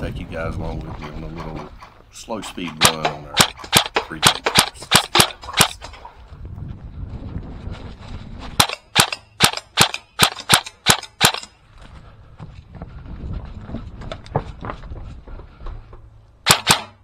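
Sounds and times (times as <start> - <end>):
airsoft gun shots: 2.8 - 5.9, 8.6 - 11.5, 16.4 - 17.0.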